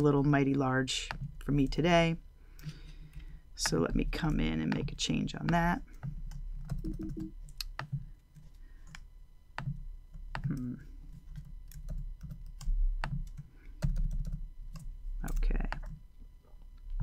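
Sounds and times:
keyboard and mouse clicks: 3.6 - 8.0.

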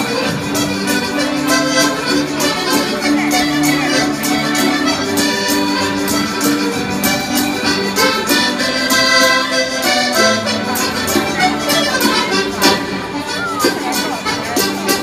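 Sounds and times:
button accordion folk tune: 0.0 - 15.0
percussive beat: 3.1 - 15.0.

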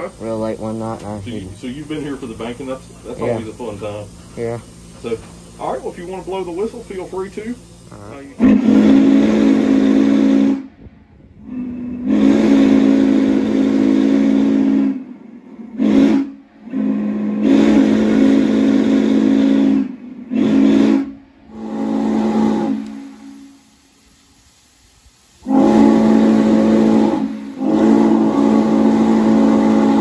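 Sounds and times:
steam hiss: 0.0 - 30.0
steam locomotive whistle blasts: 8.4 - 24.1, 25.4 - 30.0.

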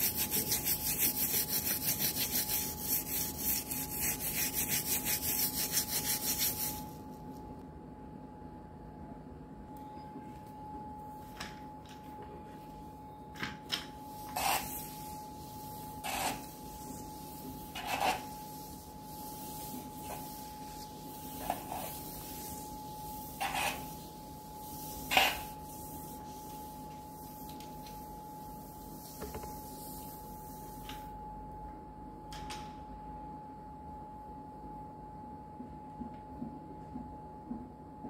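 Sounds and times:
paint scraping off floor: 0.0 - 7.0, 14.2 - 28.0.

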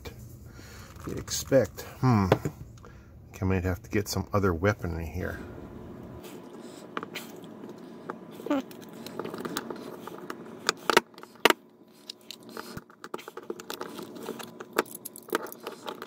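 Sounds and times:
small clicks and scrapes: 6.4 - 16.0.

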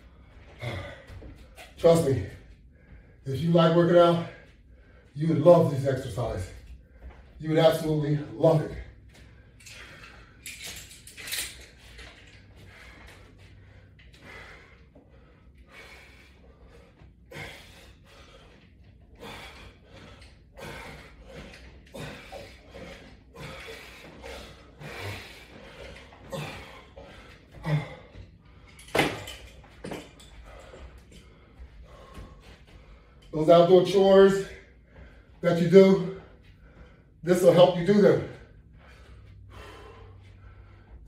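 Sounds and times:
resistance bands rustling: 8.9 - 39.5.

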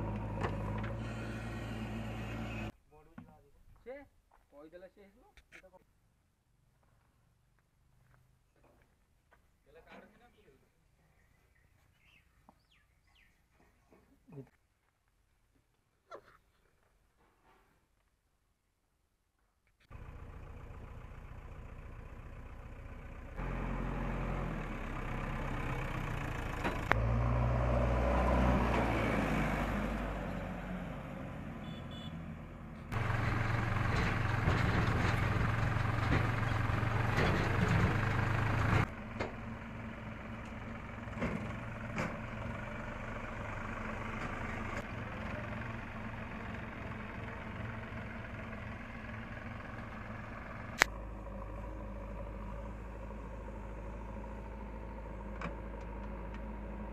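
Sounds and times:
diesel engines running: 0.0 - 2.7, 19.9 - 56.9.

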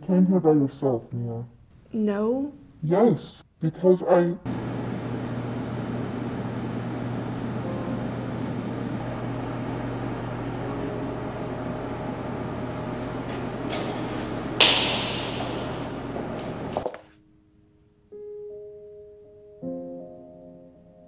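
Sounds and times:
low hum and hiss: 0.0 - 18.2
sharp ringing bang: 14.6 - 16.5.

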